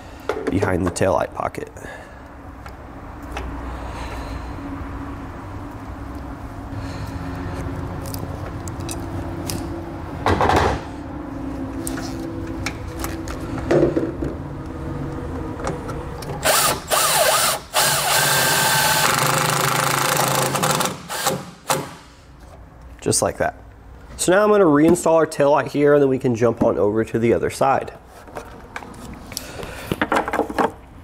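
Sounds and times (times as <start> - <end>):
impact driver driving screw: 16.4 - 22.0.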